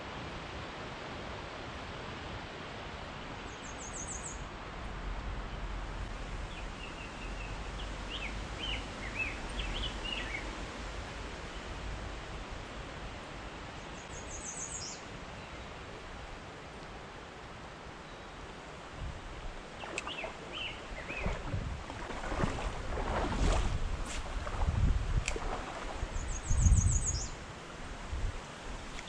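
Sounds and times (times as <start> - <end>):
songbirds calling: 3.4 - 4.5, 6.4 - 10.6, 13.8 - 16.0, 19.2 - 27.4.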